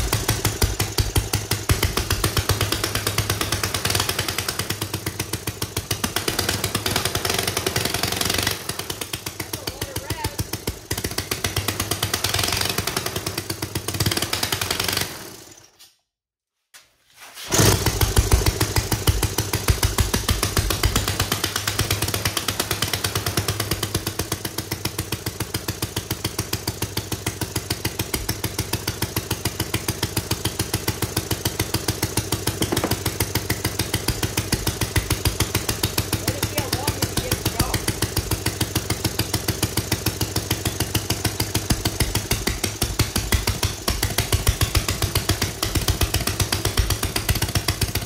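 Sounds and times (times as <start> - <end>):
single-cylinder engine running: 0.0 - 15.6, 17.5 - 48.0.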